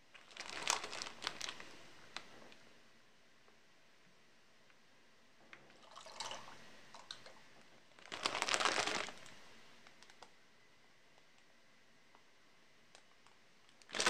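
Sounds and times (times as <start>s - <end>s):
plastic bag crinkling: 0.2s - 2.3s, 8.0s - 9.4s, 13.8s - 14.0s
pasta rushing from a bag: 8.0s - 9.3s.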